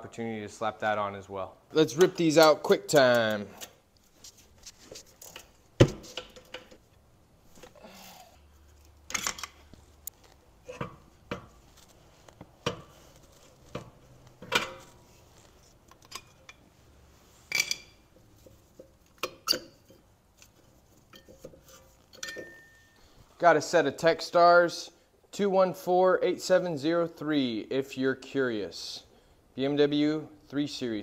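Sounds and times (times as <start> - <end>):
metallic clinks of brake parts: 17.5 - 18.0, 22.1 - 23.1.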